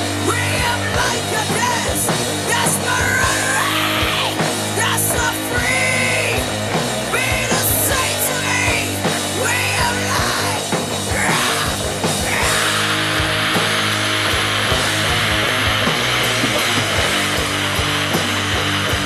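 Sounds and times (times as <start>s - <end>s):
drums and cymbals: 0.0s - 19.0s
electric bass: 0.0s - 19.0s
rough shouted vocals: 0.1s - 14.1s.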